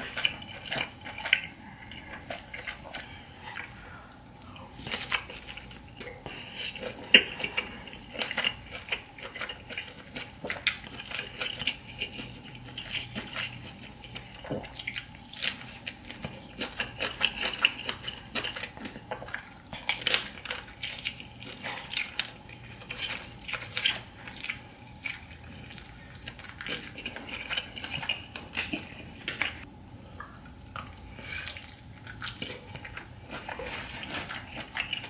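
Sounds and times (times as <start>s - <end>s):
wet chewing and lip smacking: 0.0s - 35.0s.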